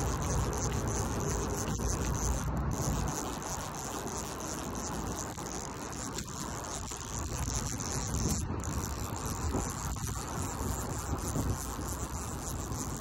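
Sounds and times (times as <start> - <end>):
low rumble on microphone: 0.0 - 13.0
night insects trilling: 0.0 - 13.0.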